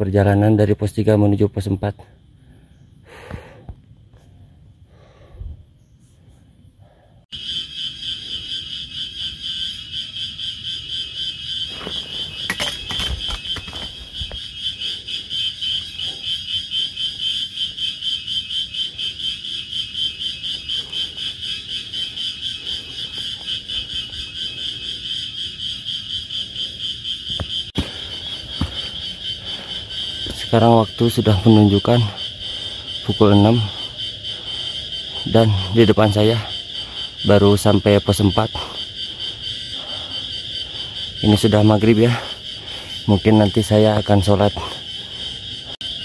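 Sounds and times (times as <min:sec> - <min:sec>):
insects chorus pulsing: 0:00.0 - 0:46.0
footsteps on trail: 0:11.7 - 0:14.8, 0:20.4 - 0:24.8, 0:27.3 - 0:31.0.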